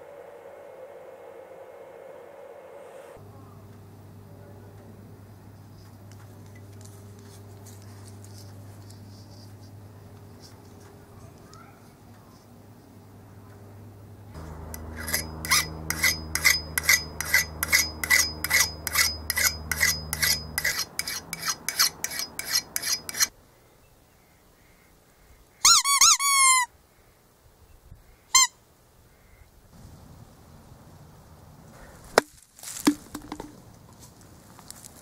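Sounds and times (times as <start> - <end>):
file rasping on steel edge: 14.4 - 23.3
rubber chicken toy squawking: 25.6 - 26.7, 28.3 - 28.5.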